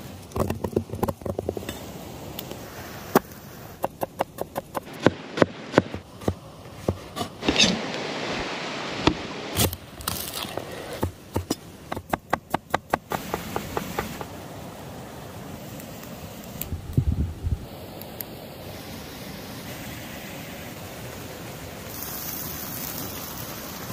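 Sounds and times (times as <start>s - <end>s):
knife chopping on wooden board: 11.0s - 14.3s.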